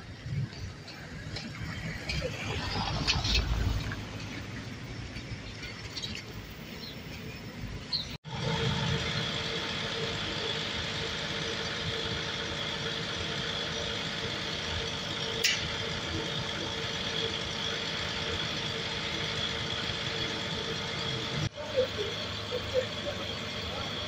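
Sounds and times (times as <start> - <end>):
fire truck engine idling: 8.3 - 24.0.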